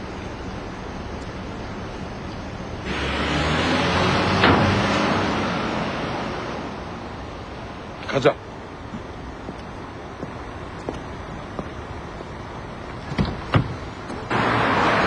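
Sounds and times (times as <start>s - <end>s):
car driving away: 2.8s - 8.0s, 14.1s - 15.0s.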